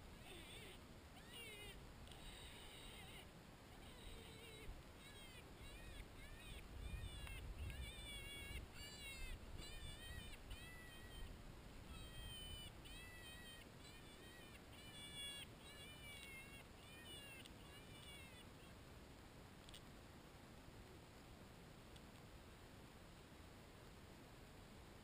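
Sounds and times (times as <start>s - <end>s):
predator call wailing cries: 0.2s - 11.3s, 11.9s - 18.7s.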